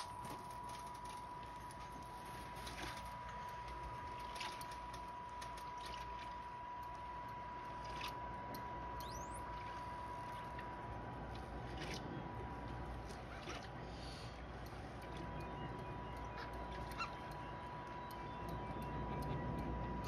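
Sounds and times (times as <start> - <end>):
water lapping against a dock: 0.0 - 20.0
small splashes and clicks: 0.1 - 13.8.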